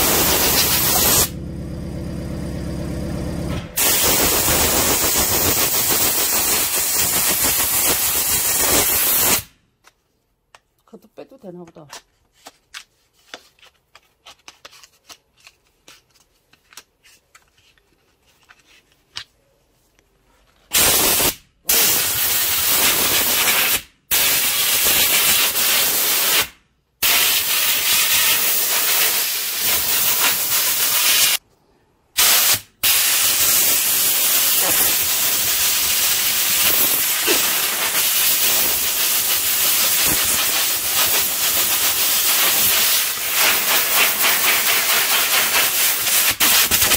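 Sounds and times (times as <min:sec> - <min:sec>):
compressed air hissing blasts: 0:00.0 - 0:01.4, 0:03.8 - 0:09.6, 0:20.7 - 0:31.4, 0:32.2 - 0:46.9.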